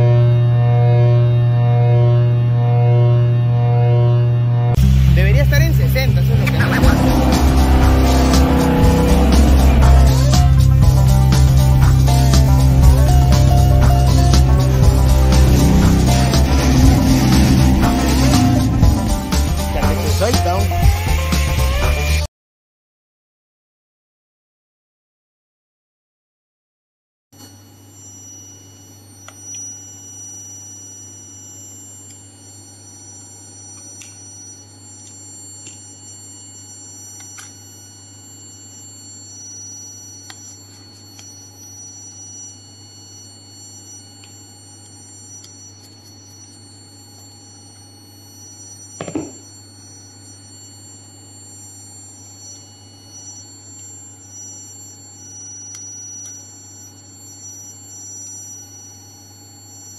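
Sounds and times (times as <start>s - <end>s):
electrical hum: 0.0s - 22.1s
high-pitched whine: 0.0s - 22.3s, 38.4s - 51.0s
loud knock: 49.0s - 49.4s.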